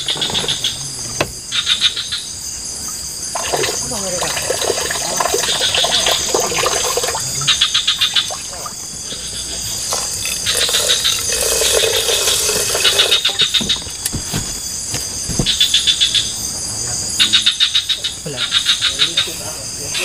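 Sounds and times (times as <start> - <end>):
animals calling in rapid clicks: 5.2 - 14.1.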